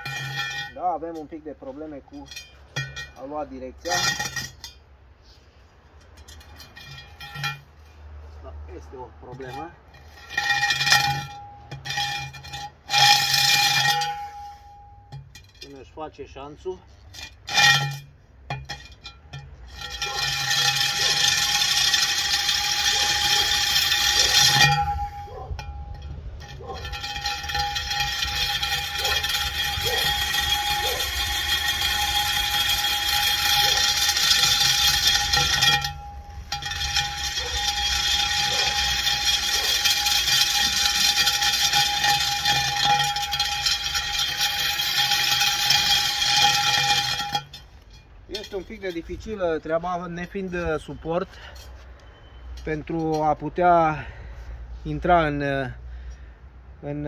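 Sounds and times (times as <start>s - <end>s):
core drill boring into concrete: 19.7s - 24.8s, 26.8s - 47.6s.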